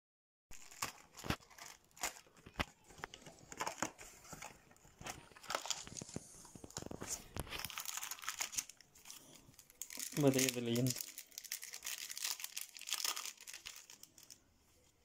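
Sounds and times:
plastic wrap crinkling: 0.5s - 14.9s
cardboard rustling: 0.6s - 8.6s.

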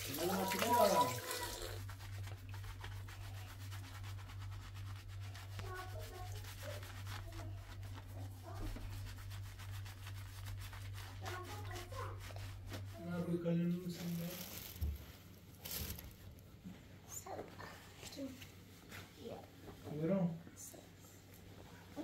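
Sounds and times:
fingers scrubbing wet lathered hair: 0.0s - 14.8s
low steady hum: 0.0s - 22.0s.

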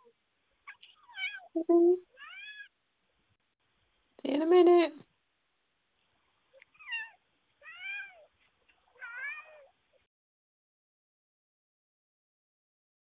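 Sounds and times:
cat meowing: 0.7s - 1.6s, 2.2s - 2.8s, 6.7s - 8.3s, 9.0s - 9.7s.

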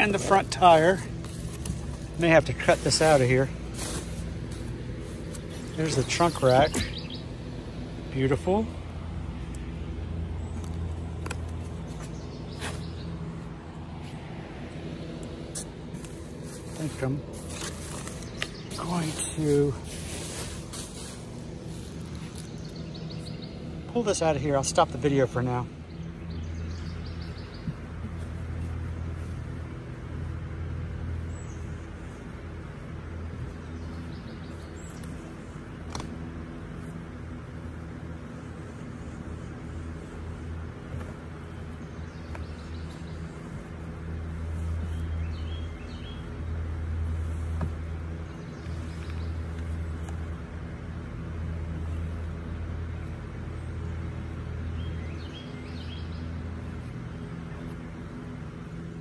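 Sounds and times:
electric fan humming: 0.0s - 59.0s
bird chirping: 5.1s - 8.6s, 10.1s - 13.4s, 16.8s - 19.8s, 21.8s - 29.1s, 33.1s - 35.9s, 41.4s - 47.0s, 51.7s - 59.0s.

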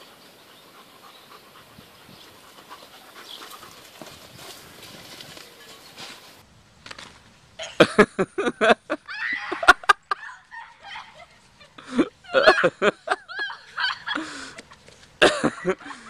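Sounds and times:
people laughing and shrieking: 8.9s - 14.7s.

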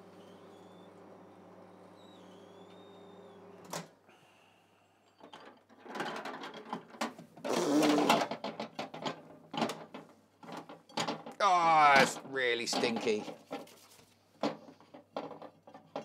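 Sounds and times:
microwave oven humming: 0.0s - 4.0s
clattering knocks and rustles: 5.1s - 16.0s.

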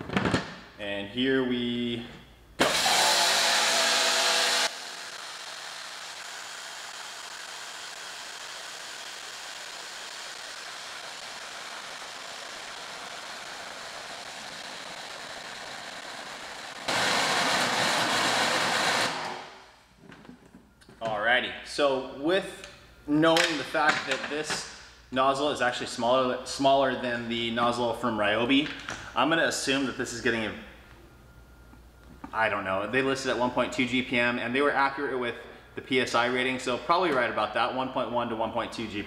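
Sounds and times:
pressure washer spraying water: 2.7s - 19.4s.

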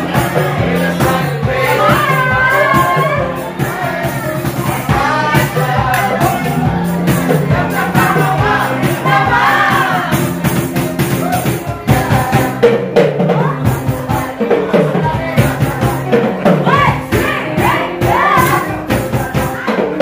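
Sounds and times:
bass: 0.0s - 20.0s
drum beat: 0.0s - 20.0s
live band dance music: 0.0s - 20.0s
person singing: 0.0s - 20.0s.

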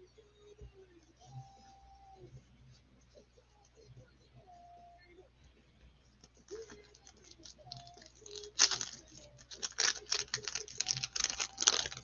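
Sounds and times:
wrapper tearing and crinkling: 6.5s - 12.0s.

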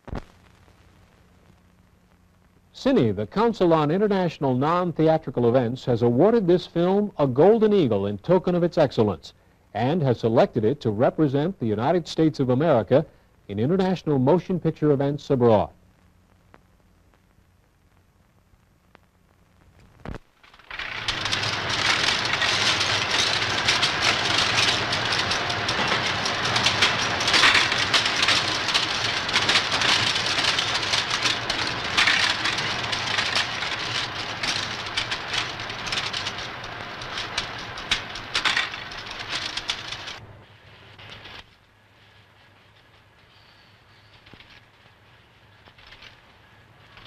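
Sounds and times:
low machine hum: 15.8s - 41.1s
typesetting machines clattering: 20.4s - 40.2s.

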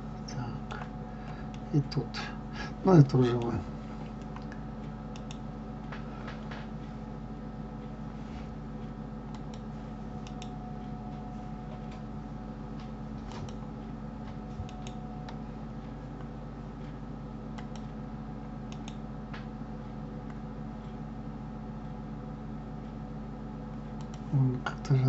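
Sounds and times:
low electrical hum: 0.0s - 25.0s
computer mouse clicking: 3.4s - 5.5s, 9.3s - 10.5s, 14.6s - 15.4s, 17.5s - 18.0s, 18.7s - 19.0s, 24.0s - 24.3s.

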